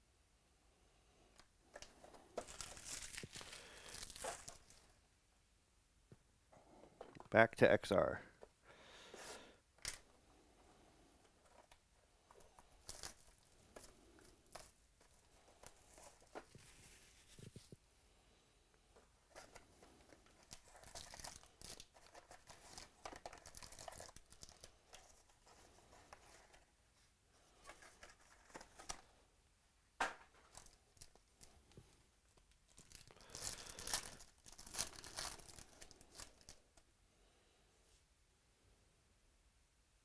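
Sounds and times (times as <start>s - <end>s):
plastic wrapper crinkling and tearing: 1.8s - 4.8s, 12.4s - 14.8s, 19.3s - 26.5s, 30.5s - 31.7s, 32.4s - 36.6s.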